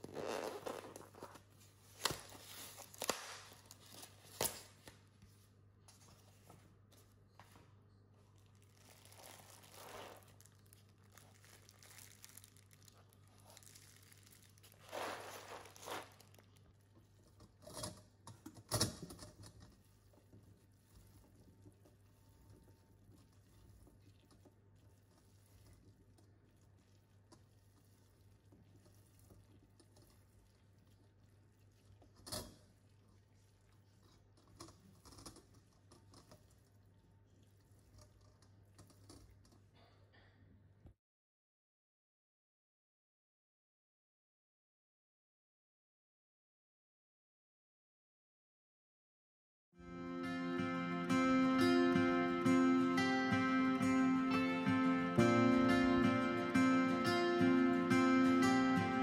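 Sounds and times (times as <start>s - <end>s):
plastic crinkling: 0.0s - 5.1s, 8.2s - 39.6s.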